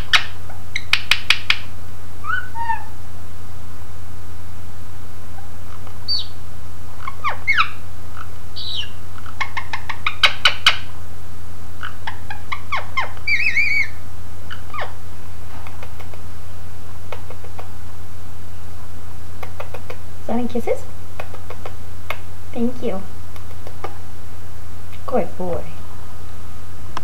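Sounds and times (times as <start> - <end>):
parakeet wavering call: 0.0 - 1.1, 2.2 - 3.0, 6.1 - 6.4, 7.0 - 10.9, 11.8 - 15.0
parakeet chirping: 0.0 - 2.9, 5.4 - 10.9, 11.8 - 15.0.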